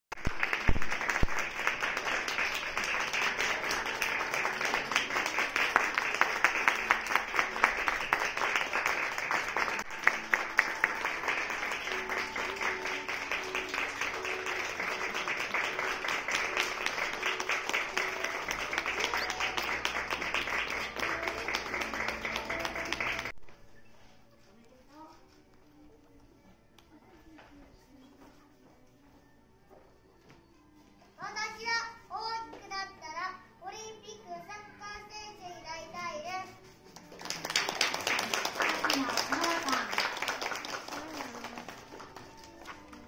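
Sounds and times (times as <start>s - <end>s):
audience clapping: 0.1s - 23.4s, 36.9s - 43.0s
quiet recorded music: 0.2s - 43.0s.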